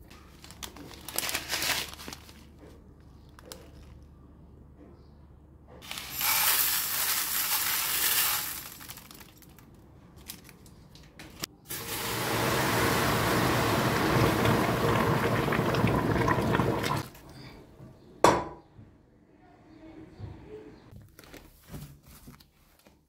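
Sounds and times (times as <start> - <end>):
granules pouring and hissing: 5.8 - 9.3, 11.7 - 17.2
water pouring and splashing: 11.7 - 17.5.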